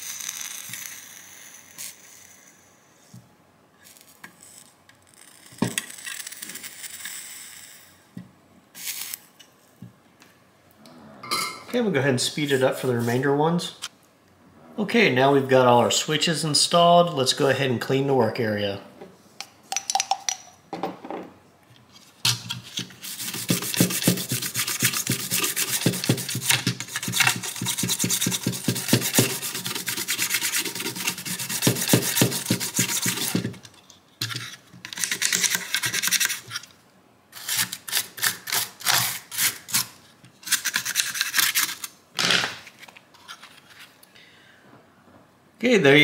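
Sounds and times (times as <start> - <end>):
toothbrush scrubbing circuit board: 23.0 - 33.5.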